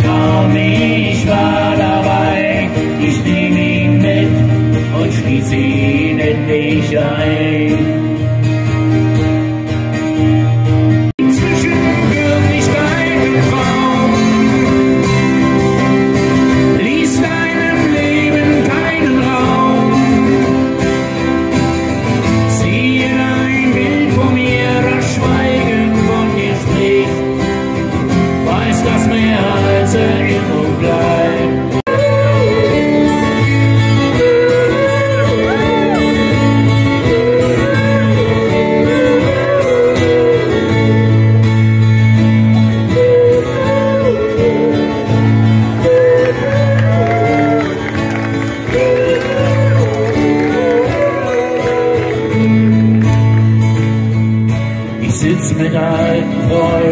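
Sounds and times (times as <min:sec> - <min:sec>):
strummed acoustic guitars: 0:00.0 - 0:56.9
person singing over a pa: 0:28.4 - 0:41.4, 0:48.6 - 0:52.7.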